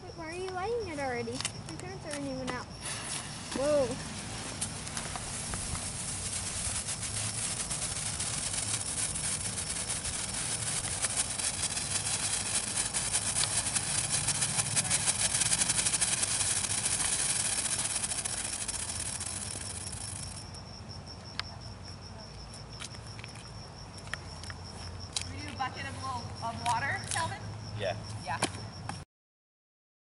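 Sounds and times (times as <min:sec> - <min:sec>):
firework hissing and crackling: 0:01.8 - 0:20.6.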